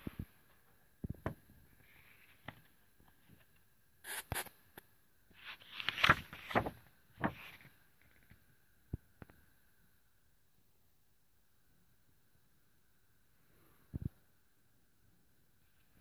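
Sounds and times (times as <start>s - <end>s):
book pages rustling: 5.4s - 8.4s.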